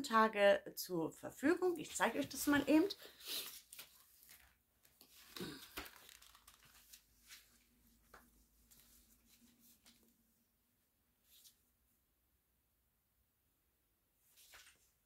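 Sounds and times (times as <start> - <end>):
paper rustling and crinkling: 2.0 - 10.1, 14.3 - 14.9.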